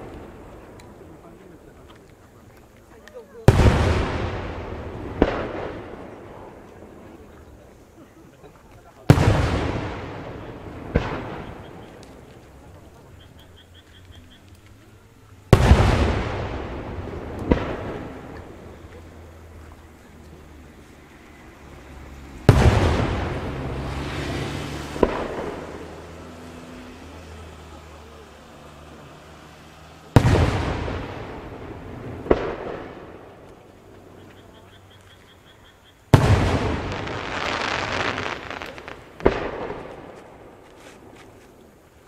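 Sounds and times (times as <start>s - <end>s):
distant firework booms: 3.4s - 7.5s, 9.0s - 13.5s, 15.5s - 19.6s, 22.3s - 26.2s, 30.1s - 34.6s, 36.1s - 41.2s
sharp firework crack: 3.5s - 6.7s, 9.0s - 14.8s, 15.5s - 19.6s, 21.9s - 27.6s, 28.5s - 34.2s, 36.1s - 41.4s.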